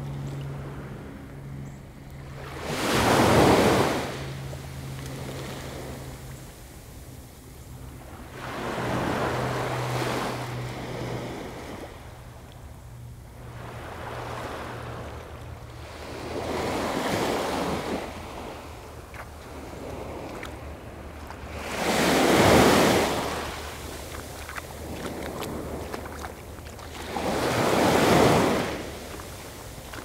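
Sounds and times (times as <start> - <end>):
waves breaking on sand: 2.3 - 7.3, 7.9 - 12.5, 13.4 - 30.0.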